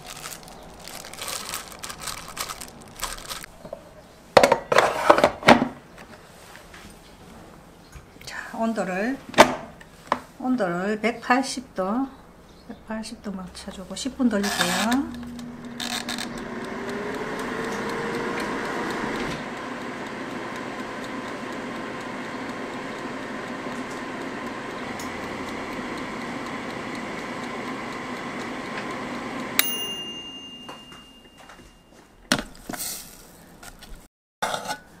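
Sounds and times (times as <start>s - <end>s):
air fryer fan whirring: 0.0s - 6.5s, 7.2s - 31.4s
timer click: 14.8s - 31.4s
bell ding: 29.6s - 32.0s.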